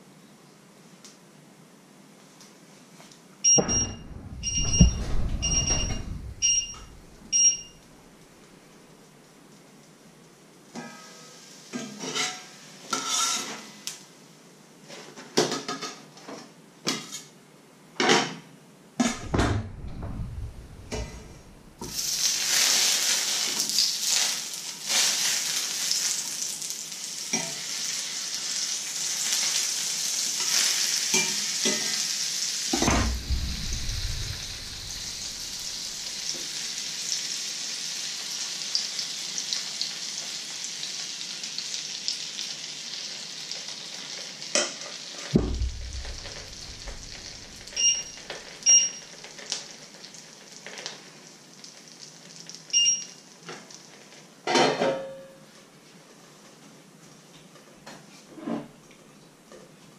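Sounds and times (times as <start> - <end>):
low thump: 3.6 - 7.4, 19.1 - 22.1, 32.8 - 36.4, 45.4 - 47.8
butter sizzling in a frying pan: 21.9 - 32.8, 34.3 - 54.3
pots and pans clattering: 54.5 - 55.2.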